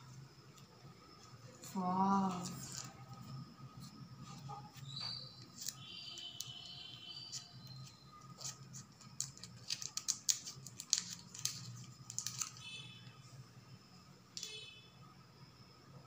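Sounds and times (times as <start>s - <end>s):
candy wrapper crinkling: 7.3s - 12.6s.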